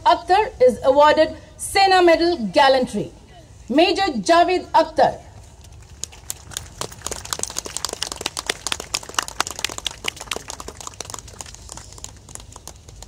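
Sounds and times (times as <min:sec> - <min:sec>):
crowd applause: 0:06.0 - 0:13.0.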